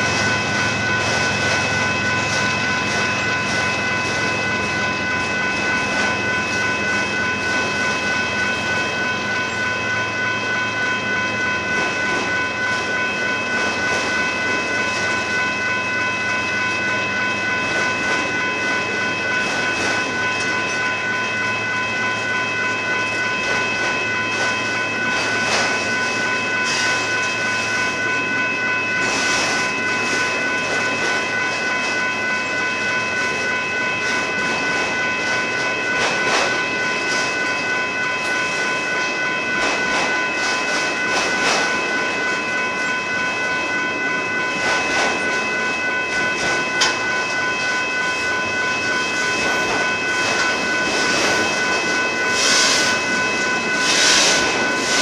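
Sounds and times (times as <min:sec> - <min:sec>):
high-pitched ringing tone: 0:00.0 - 0:55.0
train rumble: 0:00.0 - 0:55.0
freight train wheels clicking: 0:34.0 - 0:37.7, 0:38.3 - 0:42.5, 0:46.1 - 0:55.0.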